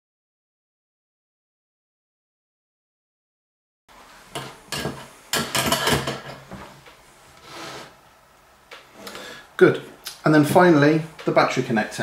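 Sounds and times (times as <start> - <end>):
objects scraping on wooden table: 7.4 - 8.0.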